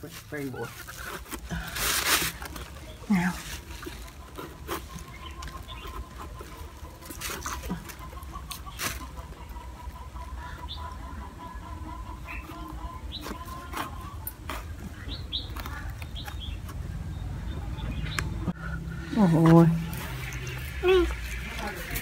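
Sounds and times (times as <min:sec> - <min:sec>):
small birds chirping: 0:00.0 - 0:22.0
chicken clucking: 0:02.7 - 0:16.7
knife cutting through rind: 0:13.1 - 0:16.8.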